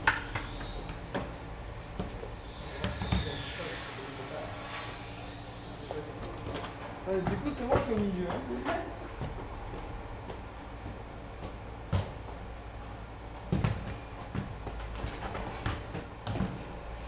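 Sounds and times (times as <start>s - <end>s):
low background hum: 0.0s - 17.0s
football kick thuds: 9.1s - 12.5s, 13.4s - 16.6s.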